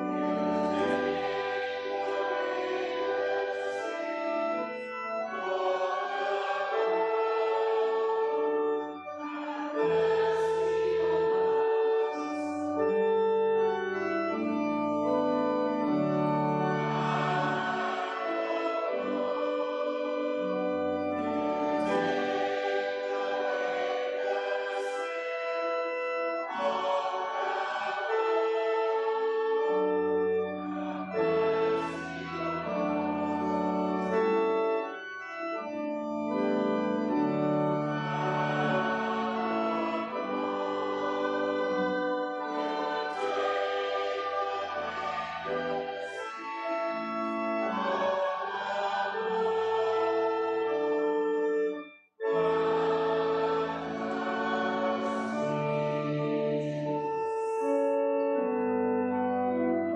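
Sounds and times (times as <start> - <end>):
organ chords: 0.0 - 59.9.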